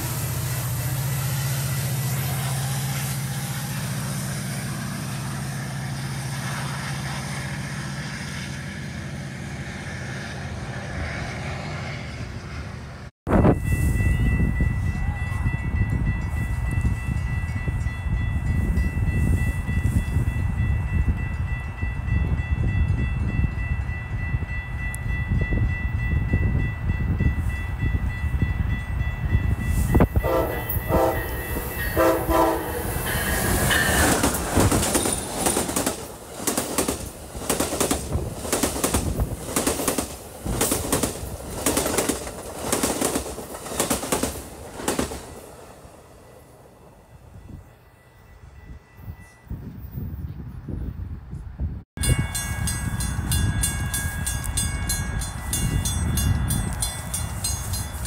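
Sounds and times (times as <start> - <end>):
train horn blasts: 1.1 - 12.6, 29.7 - 34.2
train wheels clicking over rail joints: 29.8 - 45.4.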